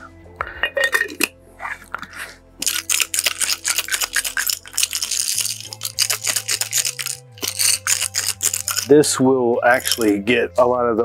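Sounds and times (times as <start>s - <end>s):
chain rattling in glass jar: 2.6s - 9.1s, 9.7s - 10.3s.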